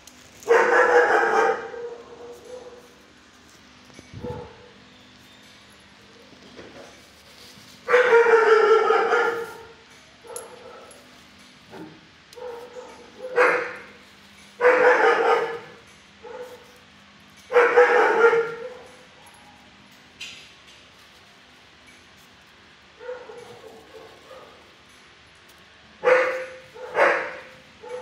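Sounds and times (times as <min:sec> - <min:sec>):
dog barking: 0:00.4 - 0:03.0, 0:04.2 - 0:04.7, 0:07.9 - 0:11.0, 0:11.7 - 0:14.0, 0:14.6 - 0:16.7, 0:17.5 - 0:19.0, 0:23.0 - 0:24.7, 0:26.0 - 0:28.0.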